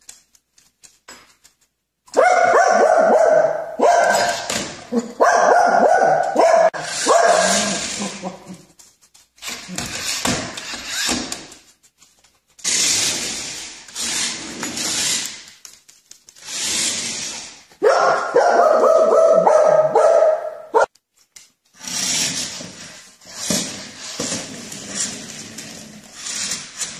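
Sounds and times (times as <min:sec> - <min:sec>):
small dog barking: 0:02.1 - 0:04.4, 0:05.1 - 0:07.8, 0:17.8 - 0:20.9.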